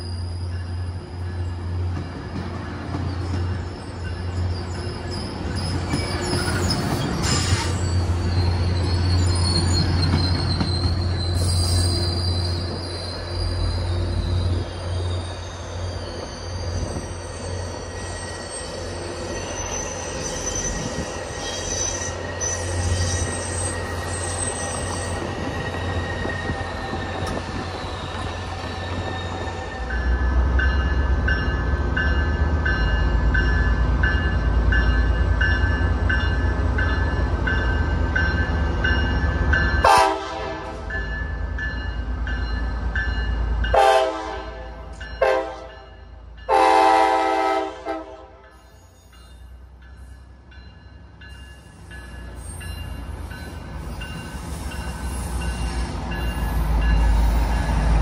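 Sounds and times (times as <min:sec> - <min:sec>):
train wheels squealing: 0:00.0 - 0:39.8, 0:48.4 - 0:58.0
diesel train passing: 0:00.0 - 0:58.0
train horn blasts: 0:39.8 - 0:40.9, 0:43.7 - 0:45.9, 0:46.5 - 0:48.6.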